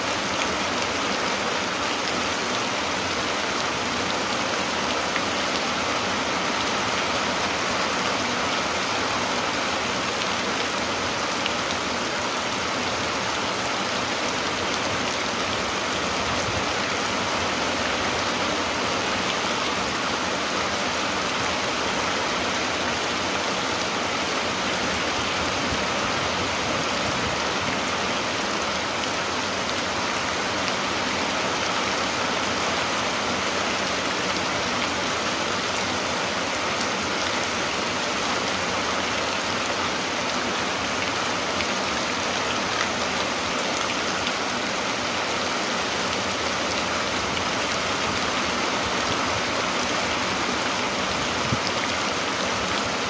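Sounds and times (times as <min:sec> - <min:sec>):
steady rain falling: 0:00.0 - 0:53.0.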